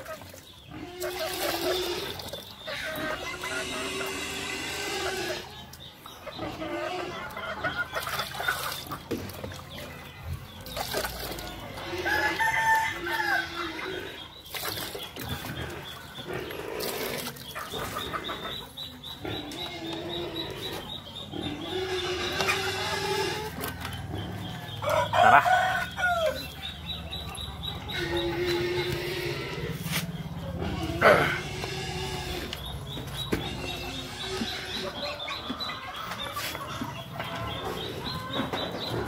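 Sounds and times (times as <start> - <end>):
hens clucking: 0.0 - 39.0
water splashing into a bucket: 10.6 - 11.6, 14.5 - 15.6
rooster crowing: 24.8 - 26.4.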